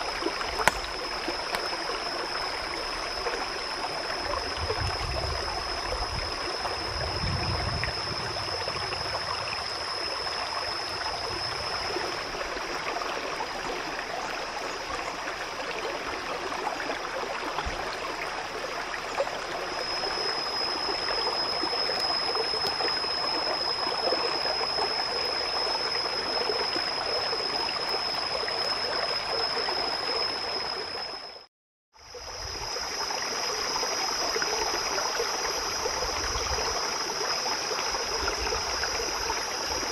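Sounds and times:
flowing water rushing: 0.0 - 31.2
thin high whine: 0.0 - 39.9.

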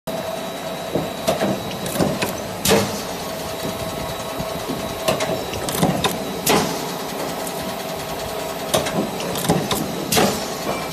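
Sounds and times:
punch press humming: 0.1 - 10.9
sharp metallic clicks and knocks: 8.7 - 10.9.

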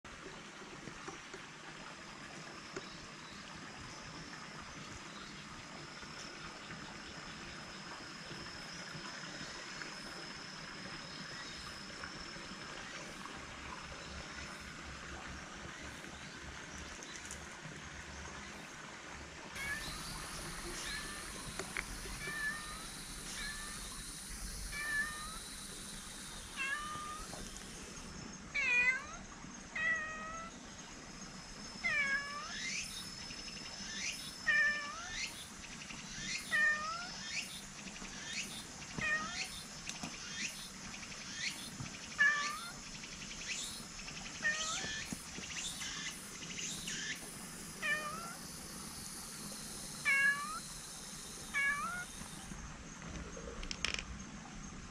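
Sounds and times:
cat meowing: 24.7 - 25.4, 26.6 - 27.3, 44.4 - 45.0, 47.8 - 48.4, 50.0 - 50.6, 51.6 - 52.1.

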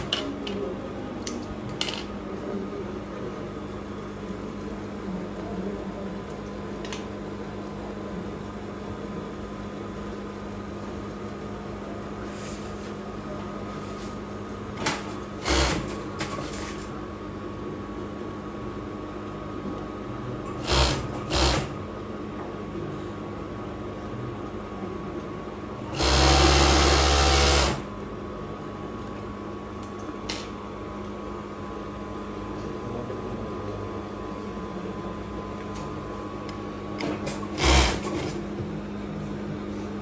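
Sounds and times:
sewing machine humming: 15.0 - 16.7, 20.6 - 21.8, 25.9 - 27.9, 37.0 - 38.4.

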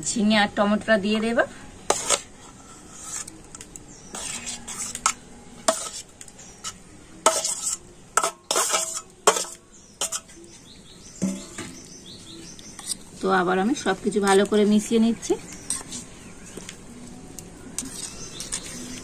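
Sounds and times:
spoon scraping steel bowl: 1.9 - 10.4, 12.5 - 13.1, 17.8 - 19.0.

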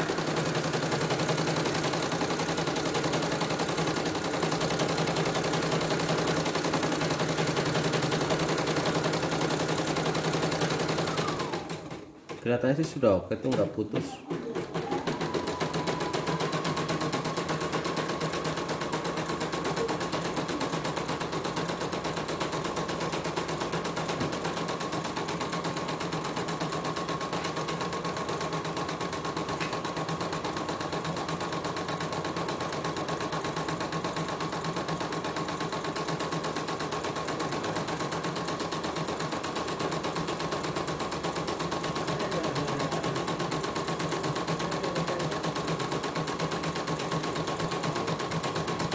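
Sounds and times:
embroidery machine stitching: 0.0 - 12.5, 13.4 - 48.9.

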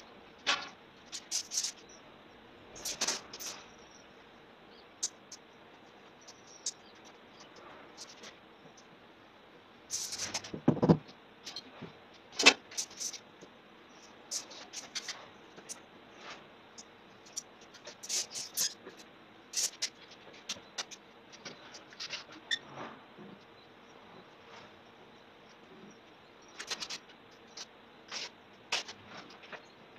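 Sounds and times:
clicks scrapes and knocks: 26.6 - 29.7.

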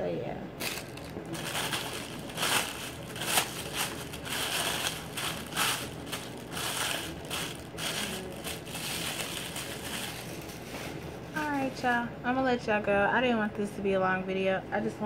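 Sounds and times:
tissue paper crinkling: 0.6 - 11.7.

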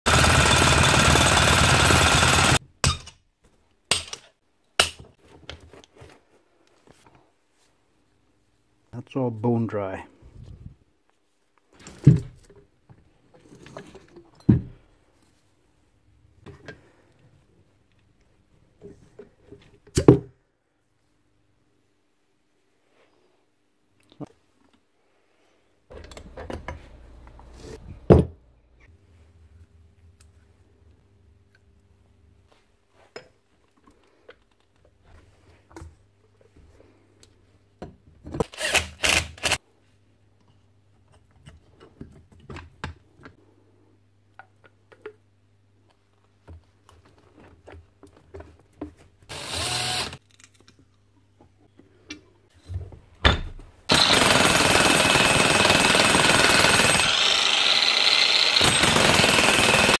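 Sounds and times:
demolition hammer running: 0.1 - 2.6, 25.9 - 28.6, 53.9 - 60.0
metal parts clicking and knocking: 25.9 - 27.3.

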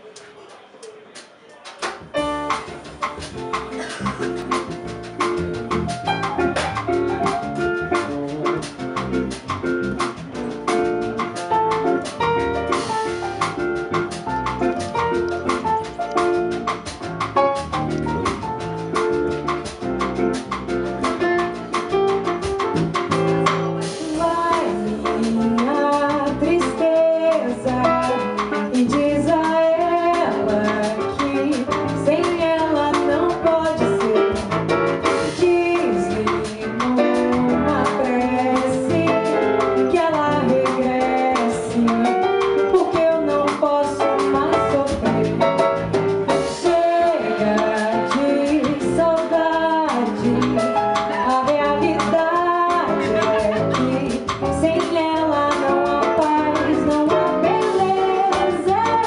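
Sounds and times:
live bossa nova band: 0.0 - 59.0
woman singing: 23.8 - 34.6, 35.2 - 45.6, 46.4 - 59.0.

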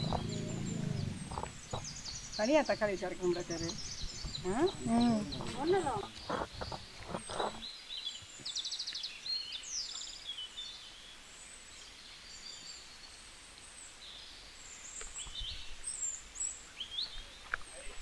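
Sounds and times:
bird trills: 0.0 - 7.6
faint background hiss: 0.0 - 18.0
small birds chirping: 0.0 - 18.0.

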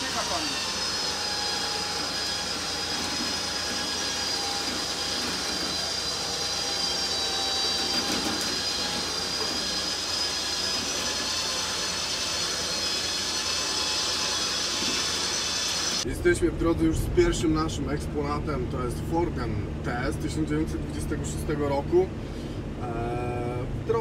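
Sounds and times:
winch whining: 0.0 - 16.1.

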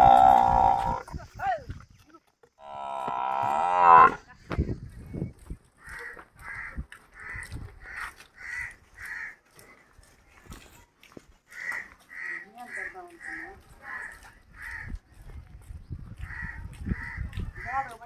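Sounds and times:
water buffalo mooing: 0.0 - 1.0, 2.6 - 4.2.

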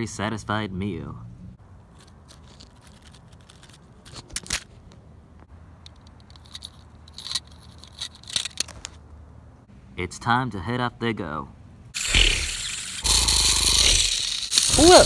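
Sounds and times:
toy robots clicking and scraping: 1.9 - 4.7, 5.9 - 8.8, 12.0 - 15.0.

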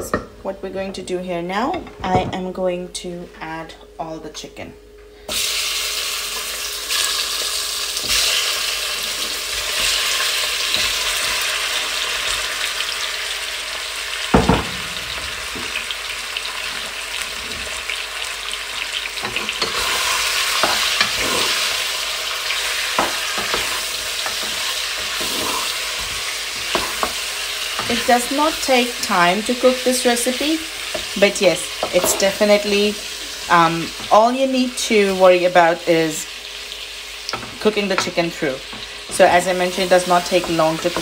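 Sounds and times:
chicken sizzling in hot oil: 5.3 - 41.0
knock: 14.4 - 15.0
wooden spoon scraping a pot: 23.0 - 27.2.

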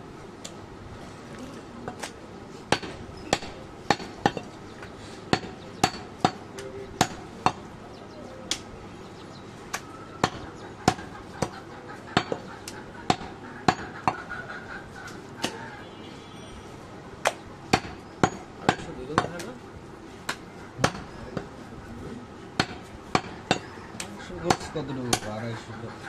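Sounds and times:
cleaver chopping meat on wood: 2.7 - 4.4, 5.3 - 6.4, 7.0 - 7.6, 9.7 - 11.6, 12.2 - 14.2, 17.2 - 19.5, 20.3 - 21.5, 22.6 - 25.3.

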